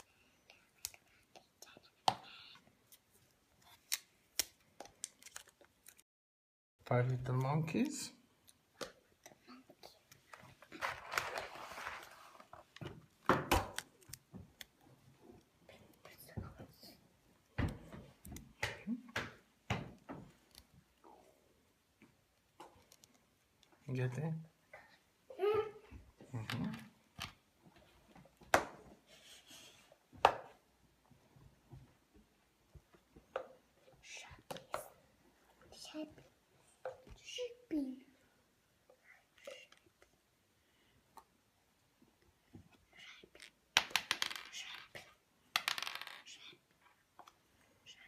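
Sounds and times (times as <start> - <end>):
plastic parts rustling: 4.8 - 6.0, 10.4 - 12.8.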